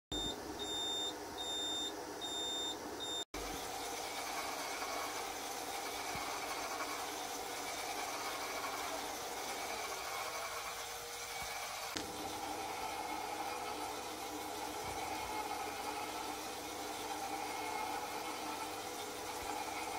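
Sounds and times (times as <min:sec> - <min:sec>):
high-pitched alarm beeps: 0:00.1 - 0:03.2
radar set humming and hissing: 0:00.1 - 0:19.9.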